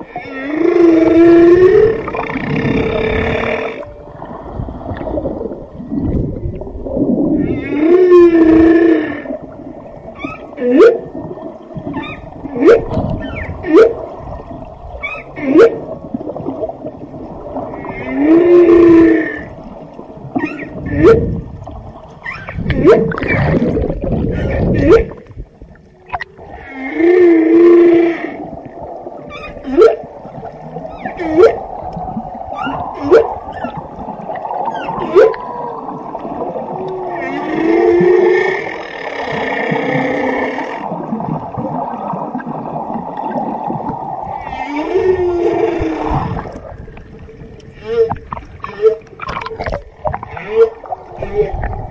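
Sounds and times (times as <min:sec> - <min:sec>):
whale whoops: 0:00.0 - 0:03.9, 0:07.2 - 0:09.4, 0:10.2 - 0:11.2, 0:11.9 - 0:14.1, 0:15.0 - 0:15.9, 0:20.4 - 0:21.4, 0:29.2 - 0:40.8, 0:44.2 - 0:46.6
whale moaning: 0:00.0 - 0:21.5, 0:26.0 - 0:51.9
rushing water noise: 0:00.0 - 0:51.9.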